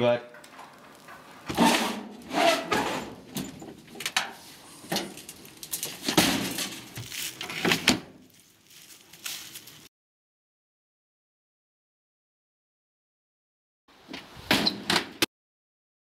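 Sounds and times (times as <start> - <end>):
sheet metal knocks and scrapes: 0.4 - 5.2.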